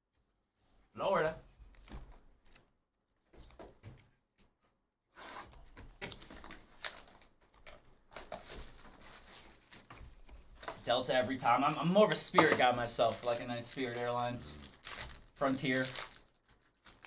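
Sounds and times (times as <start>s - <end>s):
trading cards and packaging handled: 5.5s - 17.0s.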